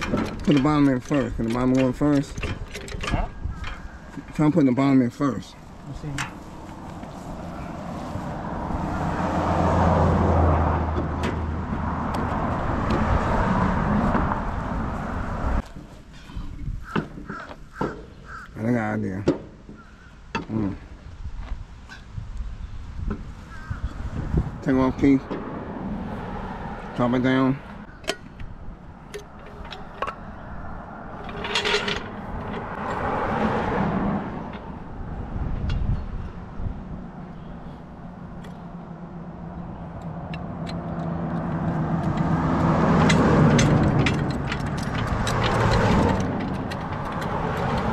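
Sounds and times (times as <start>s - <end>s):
short metallic rattle: 0.0s - 4.5s, 31.1s - 33.1s, 40.6s - 47.9s
vehicle engine humming: 0.0s - 16.1s, 23.0s - 47.9s.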